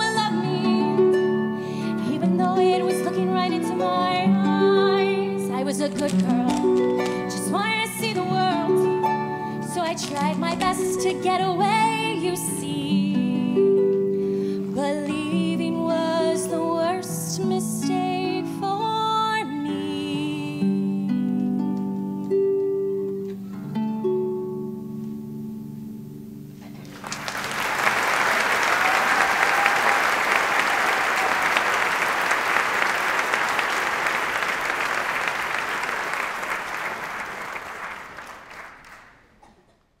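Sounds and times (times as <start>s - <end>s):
audience applause: 26.8s - 39.3s.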